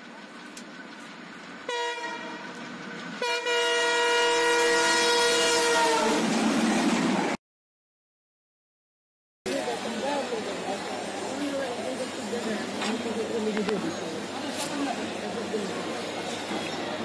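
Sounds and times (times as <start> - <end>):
multi-tone train horn: 1.7 - 2.6, 3.2 - 6.2.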